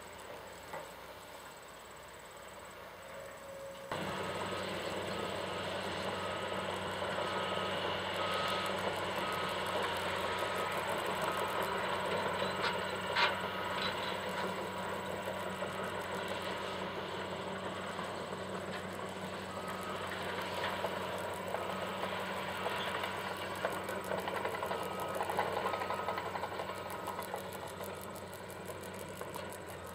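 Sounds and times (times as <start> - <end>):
reversing alarm beeping: 3.1 - 29.9
earth-moving machinery rumble: 3.2 - 29.9.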